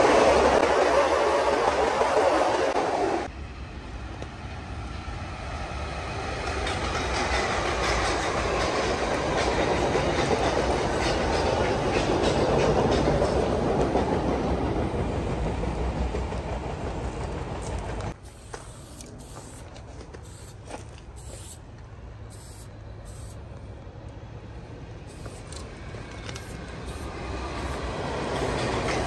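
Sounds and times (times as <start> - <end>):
rush of train wheels: 0.0 - 3.3, 5.1 - 18.7, 25.0 - 29.0
train rumble with wheel clicks: 0.0 - 3.3, 3.9 - 29.0.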